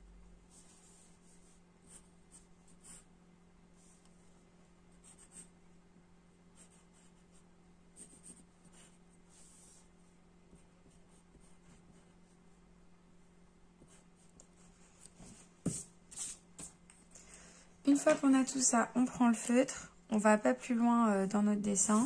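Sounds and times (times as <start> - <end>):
steady low hum: 0.0 - 22.0
pencil scratching on paper: 0.5 - 3.1, 5.0 - 5.5, 6.6 - 12.3, 13.8 - 16.4.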